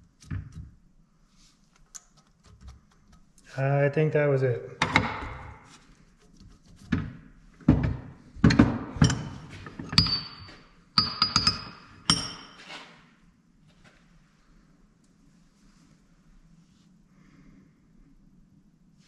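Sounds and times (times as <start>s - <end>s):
metal knocks and clinks: 8.4s - 12.6s.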